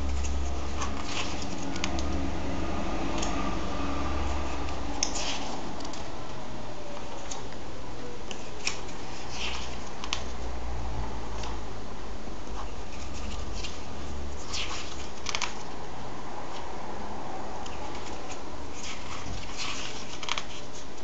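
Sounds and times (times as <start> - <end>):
comic pages turning: 0.0 - 2.1, 5.0 - 6.1, 8.3 - 10.4, 12.6 - 15.8, 17.6 - 21.0.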